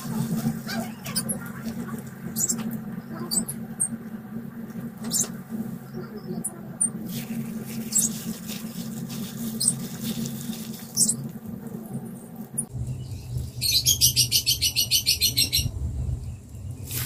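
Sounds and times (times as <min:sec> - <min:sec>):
steady low hum: 0:00.0 - 0:17.0
honeycomb being squeezed: 0:07.1 - 0:11.5
soft crackles: 0:07.1 - 0:12.7
rapid chirping trill: 0:12.6 - 0:16.9.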